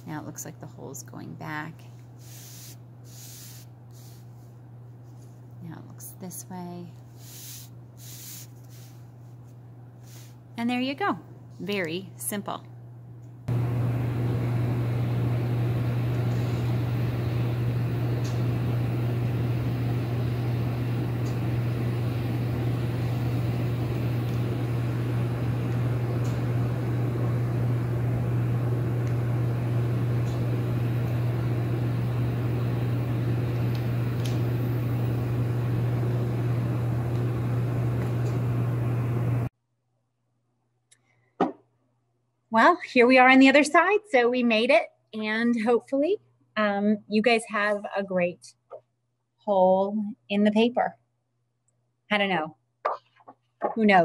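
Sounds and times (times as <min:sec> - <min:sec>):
even hiss: 0:02.2 - 0:04.3, 0:07.2 - 0:09.0
machine humming: 0:12.8 - 0:39.5.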